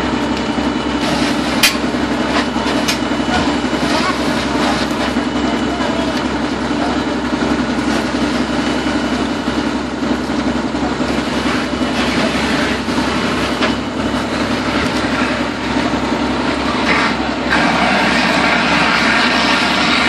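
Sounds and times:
diesel engine drone: 0.0s - 20.0s
pump hiss: 0.9s - 5.1s, 16.8s - 20.0s.

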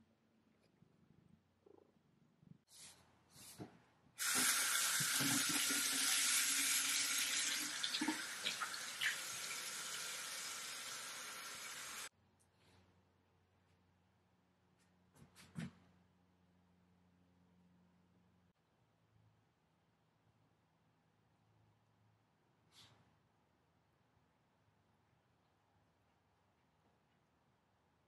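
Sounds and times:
tap water running into sink: 4.2s - 12.1s.

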